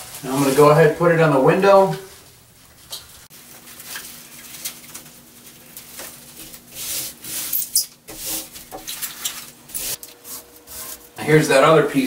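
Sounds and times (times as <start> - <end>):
bubble wrap crinkling: 2.1 - 11.2.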